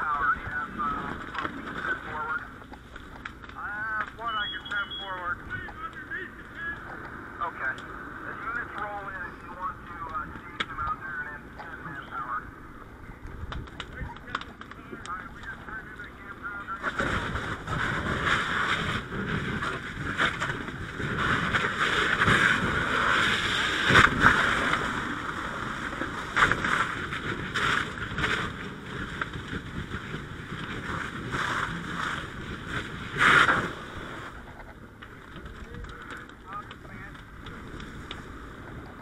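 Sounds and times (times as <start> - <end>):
sharp knocks and cracks: 13.5 - 15.5, 26.3 - 28.5.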